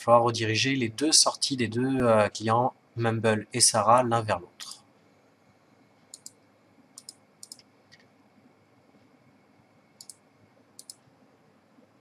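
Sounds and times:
computer mouse clicking: 6.1 - 6.4, 7.0 - 8.1, 10.0 - 10.2, 10.8 - 11.1.

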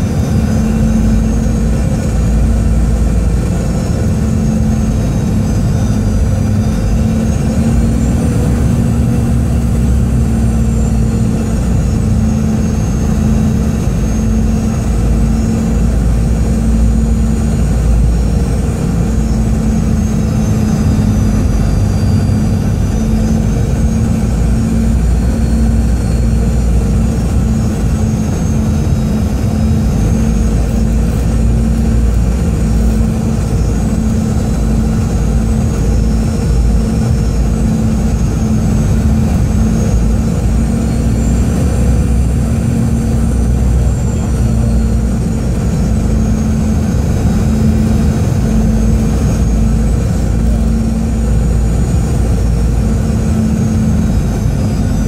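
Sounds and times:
airflow rumble in aircraft cabin: 0.0 - 55.0
jet engine whine: 0.0 - 55.0
steady hum: 0.0 - 55.0.

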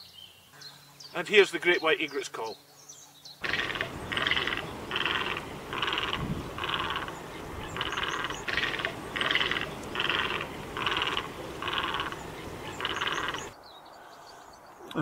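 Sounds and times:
egret calling harsh croaks: 3.4 - 13.5.

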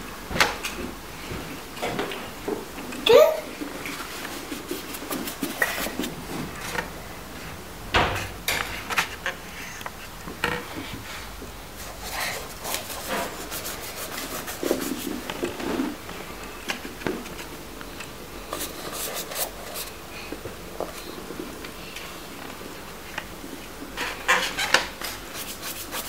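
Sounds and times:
paintbrushes scrubbing on paper: 3.8 - 6.3, 11.8 - 16.0, 18.4 - 20.0, 25.0 - 26.0.

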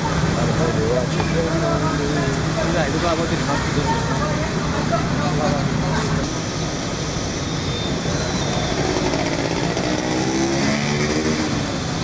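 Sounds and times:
city street traffic: 0.0 - 12.0
motorcycle engine revving past: 8.6 - 11.7.

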